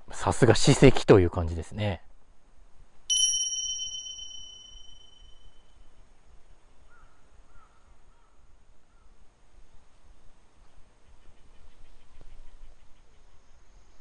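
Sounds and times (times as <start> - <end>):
bright single chime: 3.1 - 5.5
faint short bird calls: 6.9 - 9.1.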